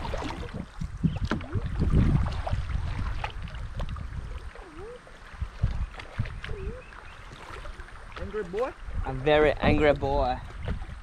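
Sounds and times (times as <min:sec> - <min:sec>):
paddle knocking hull: 0:00.0 - 0:04.0
kayak paddle splashing: 0:00.0 - 0:11.0.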